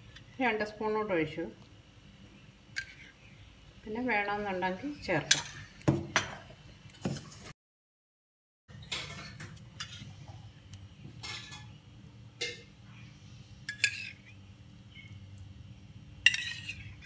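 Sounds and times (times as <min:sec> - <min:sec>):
spoon clinking against steel bowl: 0:13.7 - 0:14.2, 0:16.2 - 0:16.8.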